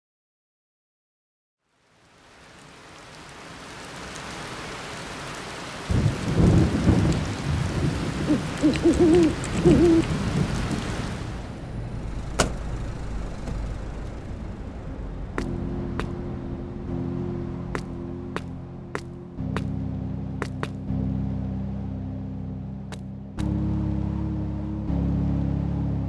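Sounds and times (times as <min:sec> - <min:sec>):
rain-like hiss: 0:01.6 - 0:16.9
heavy low rumble: 0:06.0 - 0:26.0
wavering hoot-like tones: 0:08.2 - 0:10.4.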